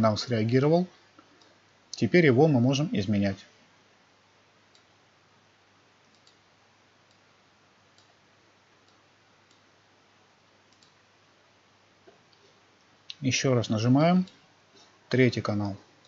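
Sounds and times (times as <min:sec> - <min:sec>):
faint room hiss: 0:00.0 - 0:16.0
soft computer mouse clicks: 0:01.2 - 0:02.0, 0:04.7 - 0:05.0, 0:06.0 - 0:07.3, 0:07.9 - 0:08.2, 0:08.8 - 0:09.7, 0:10.7 - 0:11.0.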